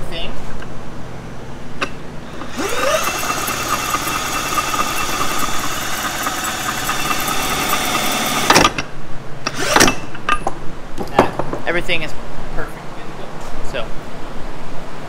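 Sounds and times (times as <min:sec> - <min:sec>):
drill click: 0:01.8 - 0:08.8, 0:09.5 - 0:10.2
drill spinning gears whine: 0:02.3 - 0:08.7, 0:09.5 - 0:10.0.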